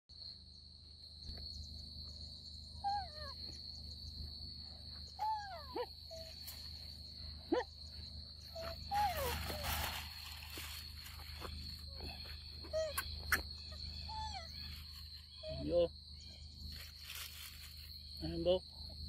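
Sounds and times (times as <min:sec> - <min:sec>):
high insect drone: 0:00.1 - 0:19.0
monkey coo calls: 0:02.8 - 0:03.5, 0:05.2 - 0:06.7, 0:08.4 - 0:09.8, 0:11.9 - 0:15.9.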